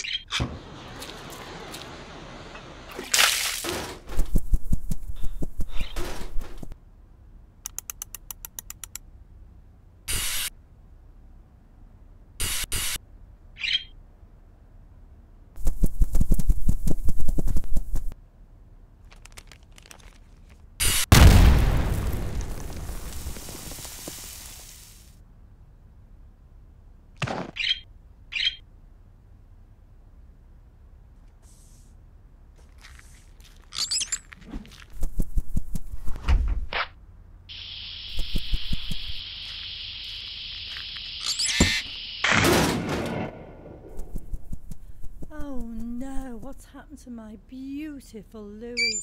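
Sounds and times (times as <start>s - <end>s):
cartoon bird call and chirps: 0.0s - 0.4s, 13.6s - 14.0s, 27.5s - 28.6s, 48.8s - 49.0s
explosion rumble: 21.1s - 24.8s.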